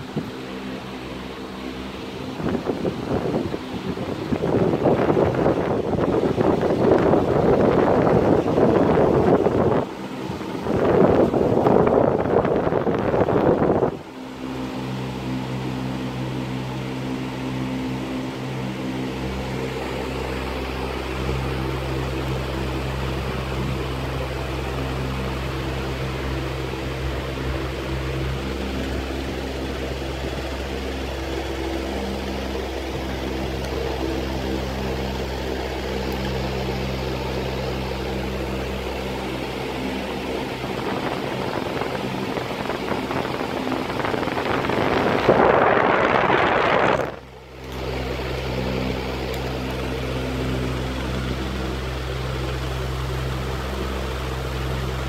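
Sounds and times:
filter motor hum: 0.0 - 55.0.

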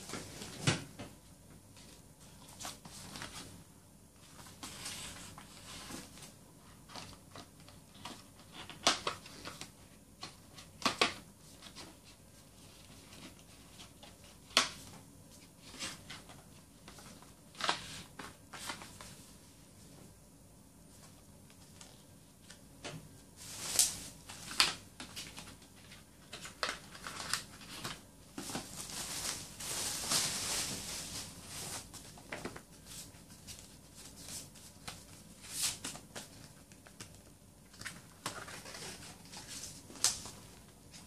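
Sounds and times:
cardboard packaging rustling: 23.4 - 41.0.

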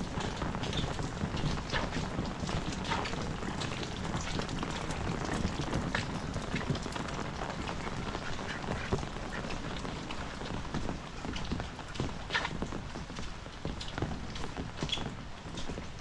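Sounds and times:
heavy rain falling: 0.0 - 16.0
water dripping on hard surfaces: 0.0 - 16.0.

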